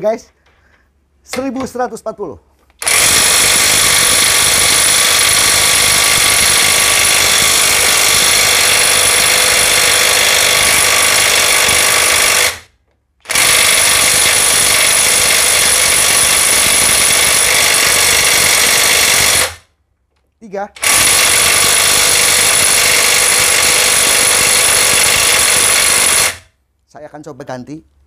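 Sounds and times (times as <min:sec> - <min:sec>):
impact wrench hammering: 0:01.3 - 0:01.8, 0:02.8 - 0:19.6, 0:20.8 - 0:26.4.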